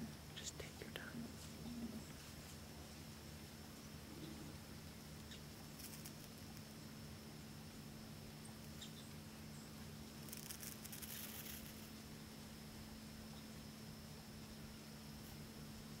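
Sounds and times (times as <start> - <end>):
steady low hum: 0.0 - 16.0
faint dry rustling: 10.2 - 12.0.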